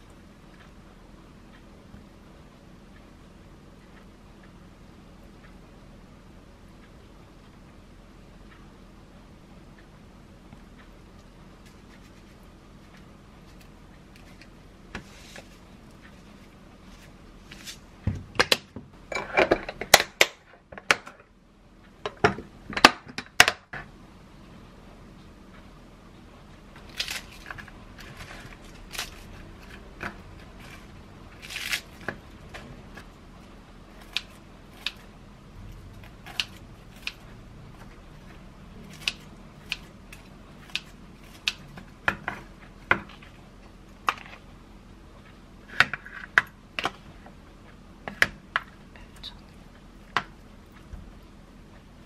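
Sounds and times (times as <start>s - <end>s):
lettuce leaves tearing: 26.9s - 27.6s, 31.4s - 32.0s
kitchen scissors snipping: 34.0s - 35.1s, 36.0s - 37.2s, 38.8s - 42.4s.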